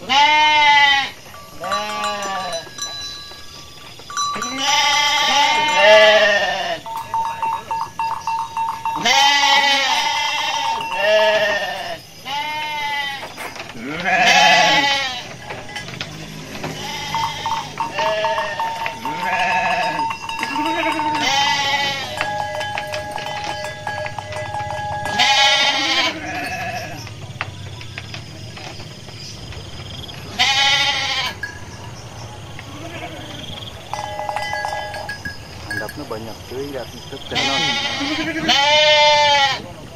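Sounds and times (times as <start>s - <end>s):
sheep bleating: 0.0s - 2.6s, 4.4s - 7.0s, 8.8s - 13.2s, 13.8s - 15.5s, 16.7s - 27.1s, 30.3s - 31.4s, 32.7s - 35.0s, 37.2s - 39.7s.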